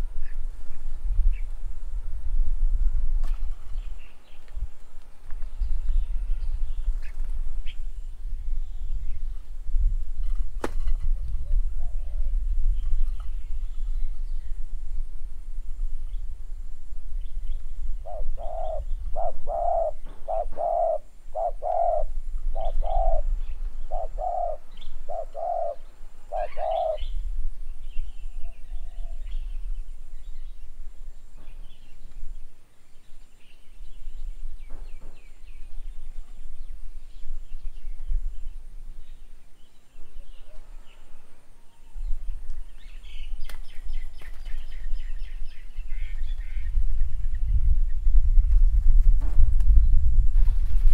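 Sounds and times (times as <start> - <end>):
wind rumble on microphone: 0.0 - 50.9
small birds chirping: 3.3 - 9.5, 17.1 - 48.0
dove cooing: 11.4 - 12.6, 18.0 - 27.1, 40.2 - 41.8.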